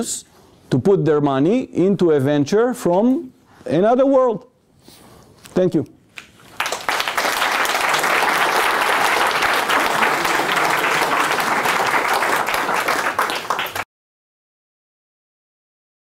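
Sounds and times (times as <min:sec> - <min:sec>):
audience applauding: 0:06.5 - 0:13.9.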